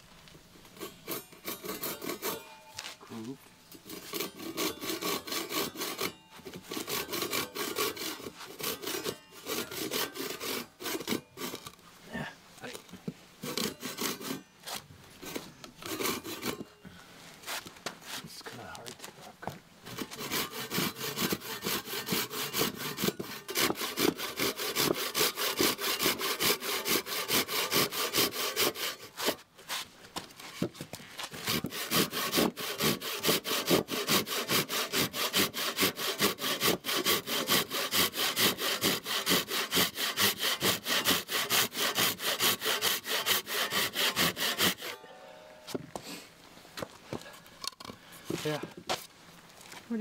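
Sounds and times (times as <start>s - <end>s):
hand saw rasping through wood: 0.8s - 2.4s, 3.8s - 11.8s, 13.4s - 16.7s, 19.9s - 29.9s, 31.2s - 45.0s.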